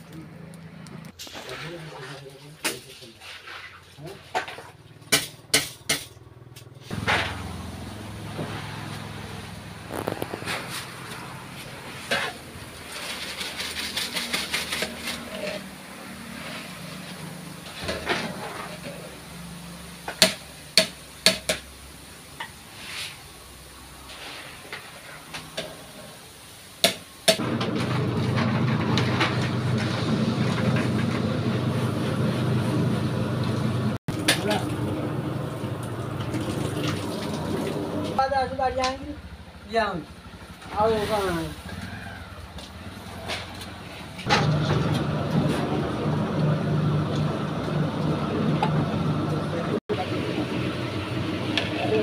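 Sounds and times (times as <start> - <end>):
hot oil sizzling in a wok: 12.1 - 27.4
bowl mixer humming and rattling: 27.4 - 38.3, 41.6 - 52.0.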